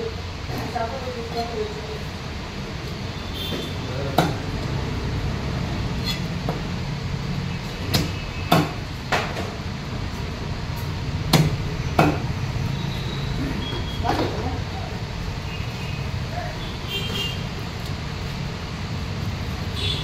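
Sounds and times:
knife chopping fish on wood: 0:07.9 - 0:09.4, 0:11.3 - 0:12.3.

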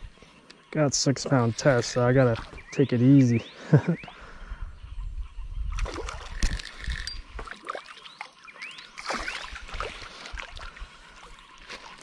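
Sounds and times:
water splashing and sloshing: 0:01.6 - 0:02.8, 0:05.7 - 0:12.0
fishing tackle clicks and knocks: 0:06.3 - 0:07.5.

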